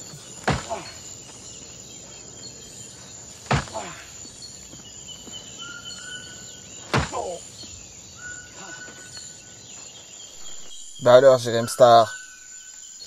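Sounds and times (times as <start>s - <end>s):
leg kicking tree trunk: 0.0s - 1.8s, 3.3s - 5.4s, 6.8s - 7.8s
birds chirping: 0.0s - 13.0s
insects chirping: 0.0s - 13.0s.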